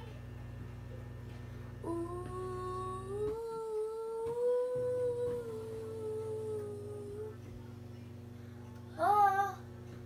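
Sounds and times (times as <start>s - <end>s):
low steady hum: 0.0s - 10.0s
girl singing a long note: 1.8s - 7.4s, 8.9s - 9.6s.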